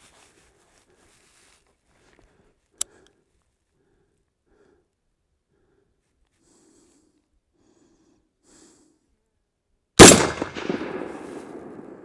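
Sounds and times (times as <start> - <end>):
soft breaths: 0.0 - 9.4
rifle shot echoing: 10.0 - 12.0.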